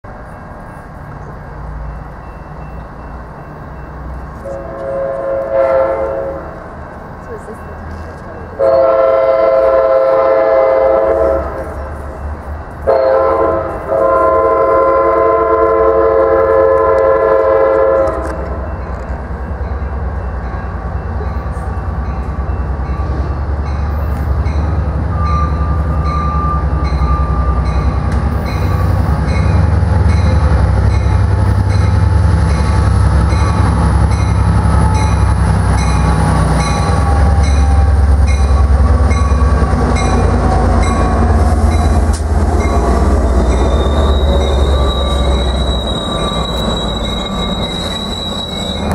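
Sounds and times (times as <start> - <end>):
train rumbling: 0.0 - 48.9
train air horn blasts: 4.4 - 6.6, 8.6 - 11.9, 12.8 - 18.6.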